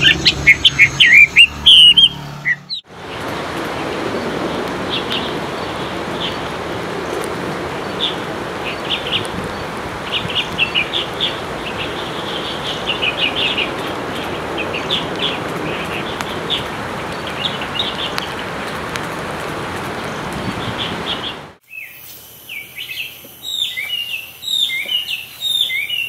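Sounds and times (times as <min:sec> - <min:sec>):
bird chirping in clusters: 0:00.0 - 0:02.9, 0:07.8 - 0:18.8, 0:20.0 - 0:26.0
steady background hiss: 0:21.6 - 0:26.0.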